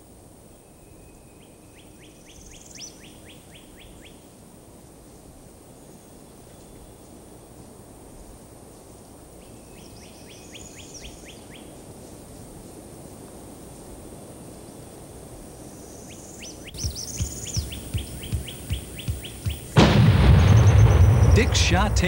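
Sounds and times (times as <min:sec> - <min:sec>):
songbird chirping: 0:00.6 - 0:04.3, 0:09.4 - 0:12.2, 0:15.6 - 0:22.0
soft low thumps: 0:16.8 - 0:21.8
lingering rumble: 0:16.8 - 0:22.0
shotgun blast: 0:19.8 - 0:22.0.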